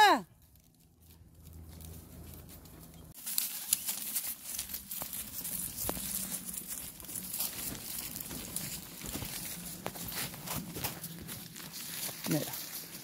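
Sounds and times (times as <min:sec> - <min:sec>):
dry leaves crunching under wheels: 0:00.3 - 0:13.0
footsteps on leafy path: 0:00.3 - 0:13.0.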